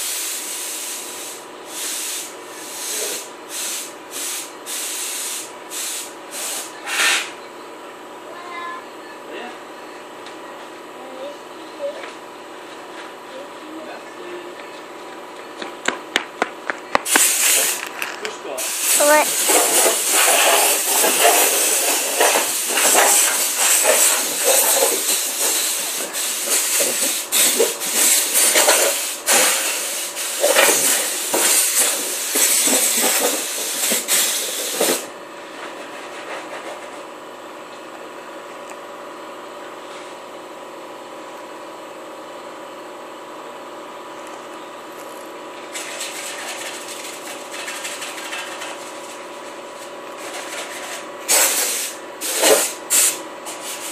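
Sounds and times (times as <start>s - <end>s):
compressed air hissing: 0.0s - 7.4s, 17.0s - 17.9s, 18.6s - 35.1s, 51.3s - 53.9s.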